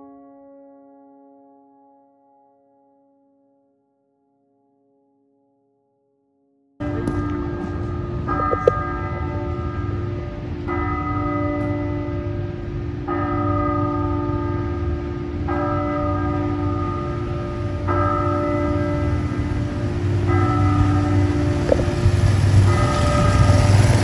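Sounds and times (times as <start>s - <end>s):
bell-like chords music: 6.8s - 24.0s.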